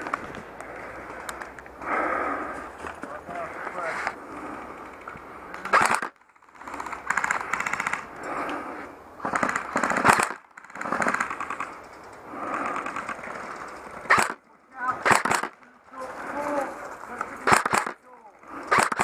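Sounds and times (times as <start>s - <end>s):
airsoft rifle automatic fire: 5.6s - 8.1s, 9.2s - 11.8s, 12.5s - 13.3s, 14.0s - 15.6s, 17.4s - 18.0s, 18.6s - 19.0s.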